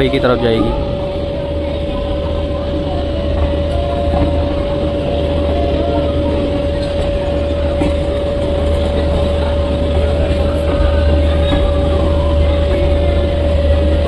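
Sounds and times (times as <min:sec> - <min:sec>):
high-pitched hum: 0:00.0 - 0:14.0
train idling low drone: 0:00.0 - 0:14.0.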